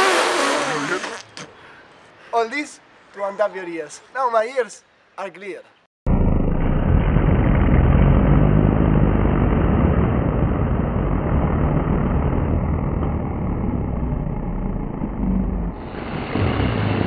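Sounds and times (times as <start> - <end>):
loud rumbling roar: 6.1 - 17.0.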